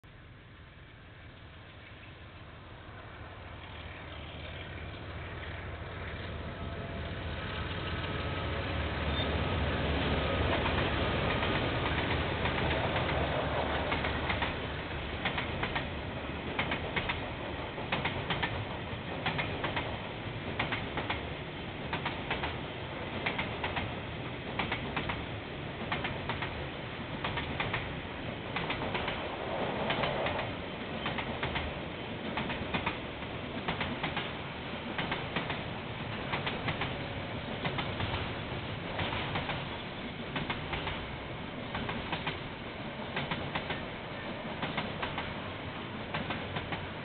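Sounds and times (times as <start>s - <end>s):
diesel locomotive rumble: 0.3s - 47.0s
train wheels clicking over rail joints: 10.4s - 47.0s.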